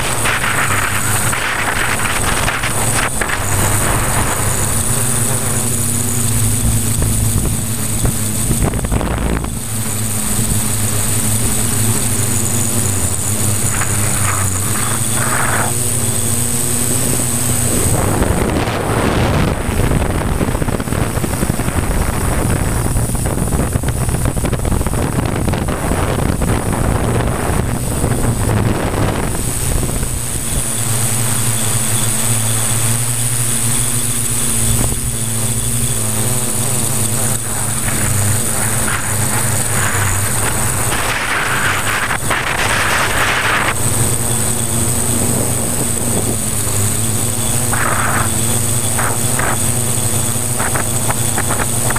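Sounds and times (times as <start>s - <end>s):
drone propellers buzzing: 0.0s - 51.9s
high motor whine: 0.0s - 51.9s
wind on microphone: 0.0s - 51.9s.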